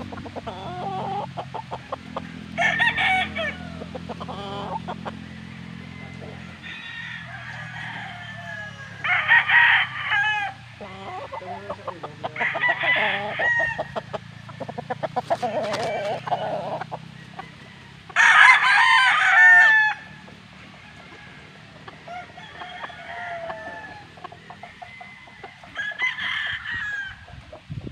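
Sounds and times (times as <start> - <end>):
hens clucking: 0.0 - 27.9
rooster crowing: 2.2 - 14.5, 15.2 - 27.3.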